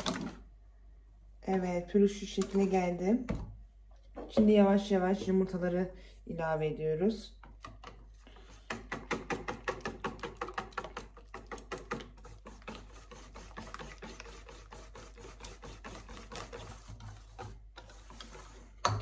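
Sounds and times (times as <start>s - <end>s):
whisk beating batter in metal bowl: 8.7s - 19.0s.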